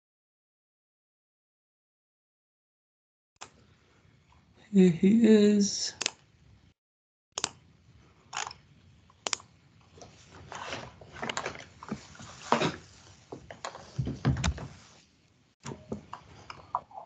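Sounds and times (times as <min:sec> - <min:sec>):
microphone handling clicks and rustling: 0:10.5 - 0:14.8.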